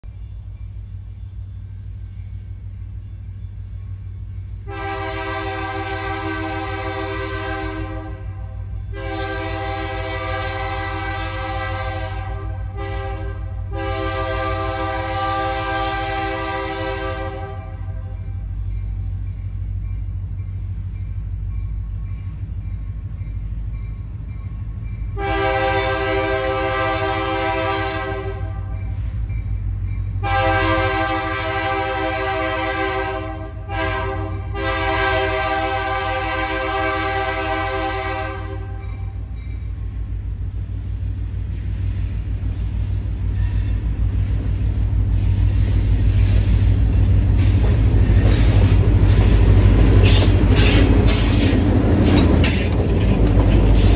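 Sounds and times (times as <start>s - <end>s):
diesel engines rumbling: 0.0s - 53.9s
locomotive air horn: 4.6s - 18.2s, 25.2s - 29.2s, 30.2s - 39.0s.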